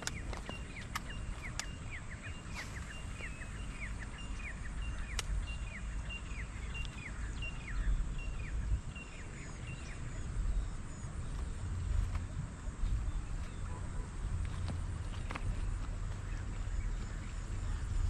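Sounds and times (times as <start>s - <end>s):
sharp clicks: 0.0s - 1.8s, 5.0s - 5.4s
bird calling: 0.0s - 12.4s.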